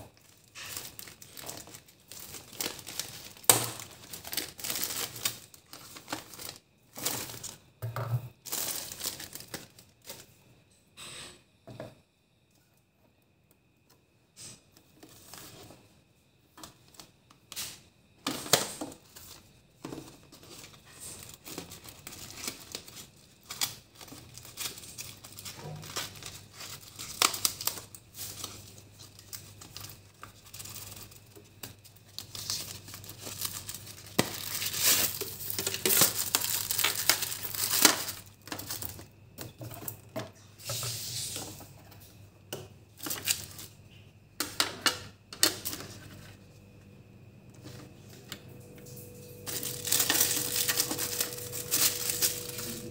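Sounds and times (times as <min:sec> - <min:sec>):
crinkling and tearing rustles: 0:00.1 - 0:07.7, 0:08.4 - 0:10.3, 0:18.3 - 0:40.0, 0:43.0 - 0:43.8, 0:49.2 - 0:52.9
low steady hum: 0:45.0 - 0:52.9.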